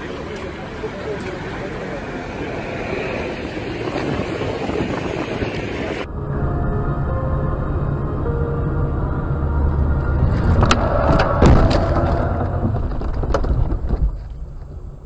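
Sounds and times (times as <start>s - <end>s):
road and engine noise: 0.0s - 15.0s
car crash bangs and crunching: 10.4s - 14.3s.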